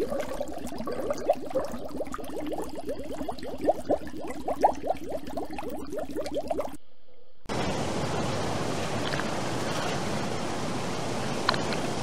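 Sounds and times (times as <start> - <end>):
rushing water underwater: 0.0 - 6.8.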